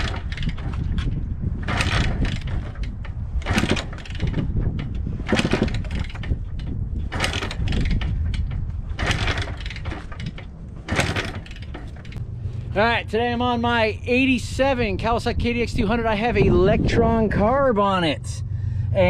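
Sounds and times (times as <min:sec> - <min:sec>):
dirt bike kick-starting: 0:00.0 - 0:13.4
engine turning over: 0:00.0 - 0:15.0.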